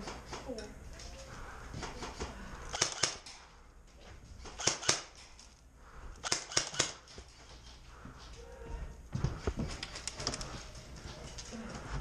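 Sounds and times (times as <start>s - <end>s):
airsoft gun bursts: 2.7s - 3.3s, 4.6s - 5.2s, 6.2s - 7.1s.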